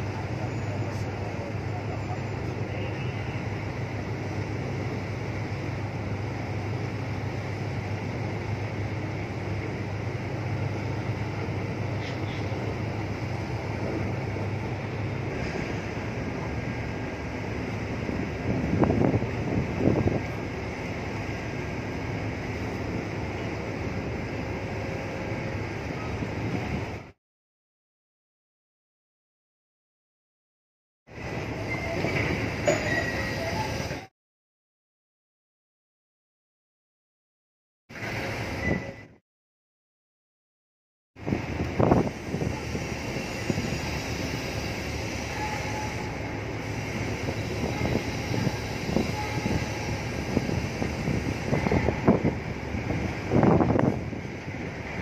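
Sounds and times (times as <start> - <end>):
ship engines droning: 0.0 - 27.2, 41.2 - 55.0
wind on microphone: 41.2 - 44.0, 46.7 - 55.0.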